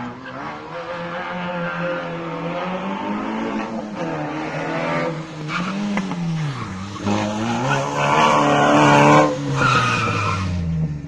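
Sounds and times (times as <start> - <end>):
rally car engine revving: 0.0 - 11.0.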